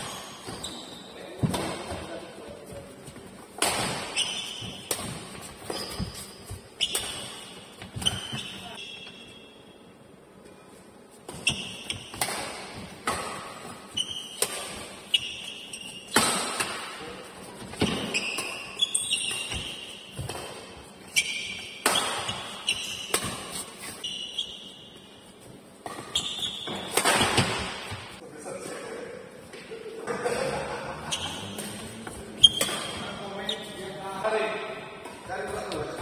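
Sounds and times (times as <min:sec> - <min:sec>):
shoes squeaking on court: 0:00.0 - 0:09.8, 0:11.1 - 0:28.2, 0:31.1 - 0:34.0
rackets striking shuttlecock: 0:03.5 - 0:09.4, 0:11.3 - 0:15.4, 0:25.8 - 0:28.1, 0:32.5 - 0:33.1.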